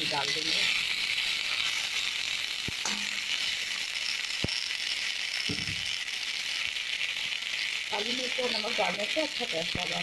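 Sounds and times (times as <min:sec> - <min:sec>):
dumplings sizzling in oil: 0:00.0 - 0:10.0
metal spatula clicking against pan: 0:02.7 - 0:03.2.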